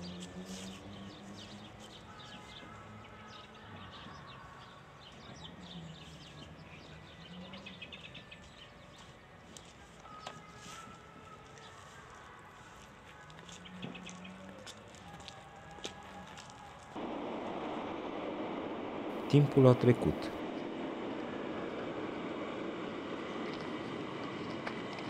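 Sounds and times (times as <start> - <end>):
small birds chirping: 0.0 - 15.3.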